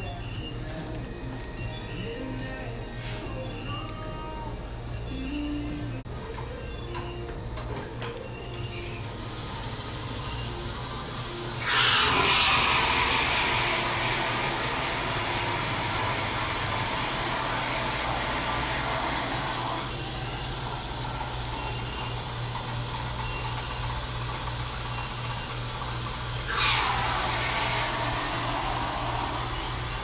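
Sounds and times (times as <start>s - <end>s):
liquid nitrogen hissing from hose: 9.0s - 30.0s.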